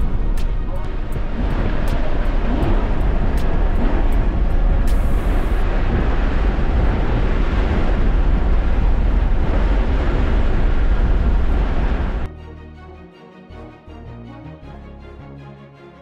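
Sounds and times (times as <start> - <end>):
in-cabin road and wind noise: 0.0 - 12.3.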